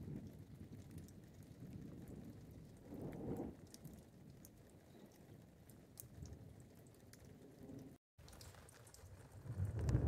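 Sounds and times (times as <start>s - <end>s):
rumble of thunder: 0.0s - 6.6s, 8.6s - 10.0s
raindrops pattering into puddles: 0.0s - 10.0s.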